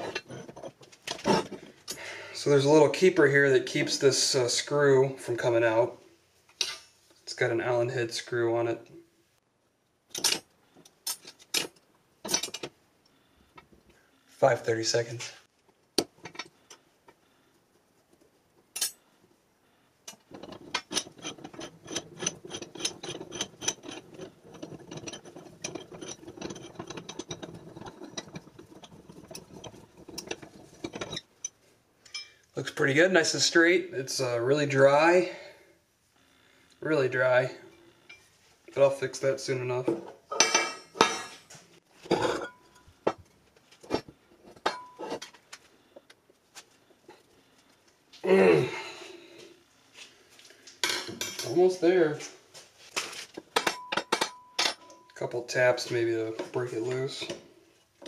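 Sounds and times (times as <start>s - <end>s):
vise screw clicking and rattling: 20.1s - 32.4s.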